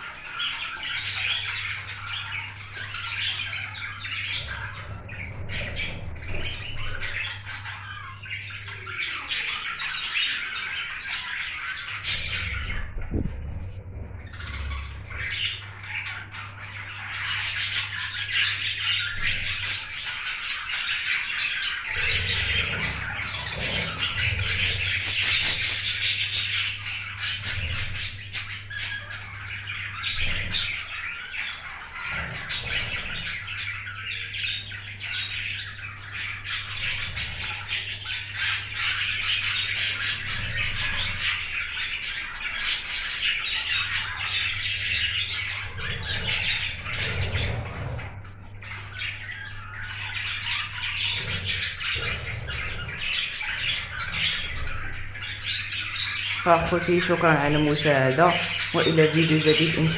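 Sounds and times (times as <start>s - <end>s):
budgerigars chattering and squawking: 0.0s - 59.9s.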